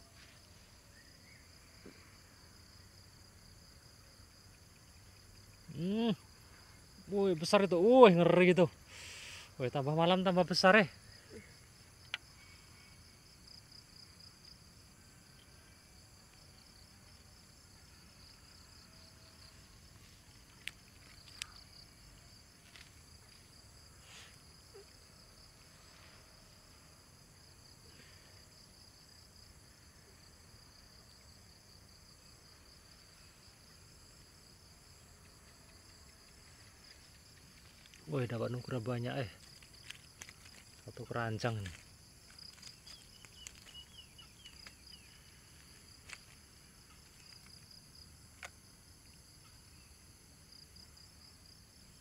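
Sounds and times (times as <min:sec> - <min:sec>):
crickets trilling: 0:00.0 - 0:52.0.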